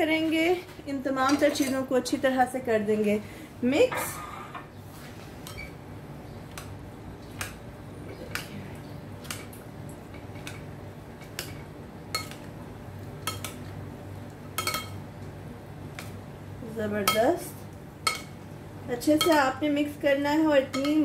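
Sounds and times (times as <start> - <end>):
spoons stirring food in bowl: 9.2 - 15.3, 20.6 - 21.0
spoons clicking against bowl: 14.6 - 15.0, 19.2 - 19.5, 20.7 - 21.0.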